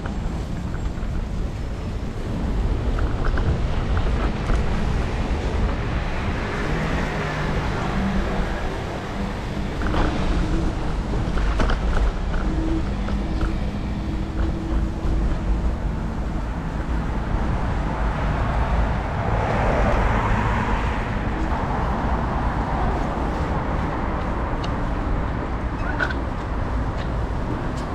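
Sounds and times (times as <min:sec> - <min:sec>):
traffic rumble: 0:00.0 - 0:27.9
vehicle passing: 0:17.8 - 0:24.0.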